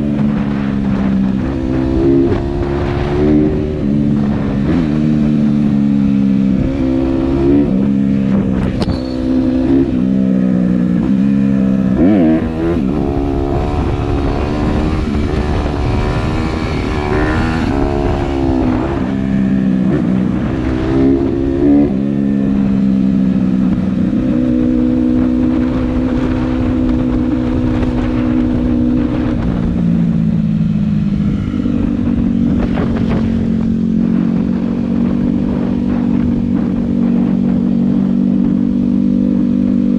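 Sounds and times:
dirt bike engine revving: 0:00.0 - 0:29.2.

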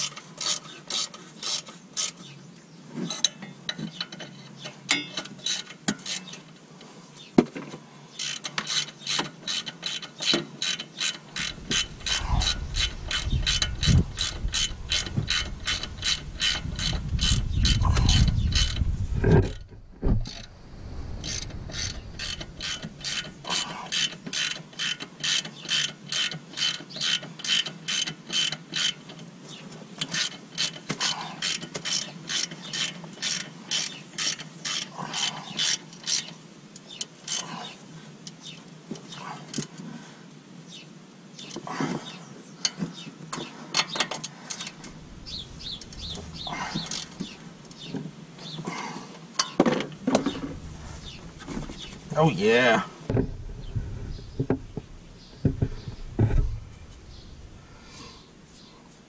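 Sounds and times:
ratchet clicking: 0:08.2 - 0:18.9, 0:21.2 - 0:29.2, 0:30.0 - 0:34.9, 0:45.7 - 0:47.8
low rumble: 0:16.9 - 0:23.4, 0:50.3 - 0:52.1, 0:53.1 - 0:58.5.

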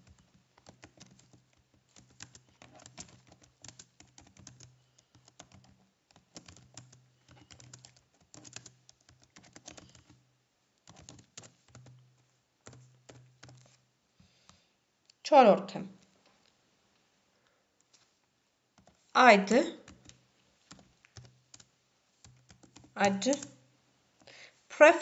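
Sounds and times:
typing on computer keyboard: 0:00.0 - 0:10.2, 0:10.8 - 0:13.8, 0:19.6 - 0:23.6.

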